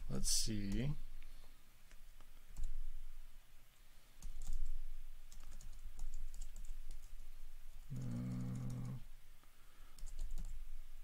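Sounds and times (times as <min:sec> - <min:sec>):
typing on a keyboard: 0:04.2 - 0:07.3, 0:07.9 - 0:09.0, 0:10.0 - 0:10.6.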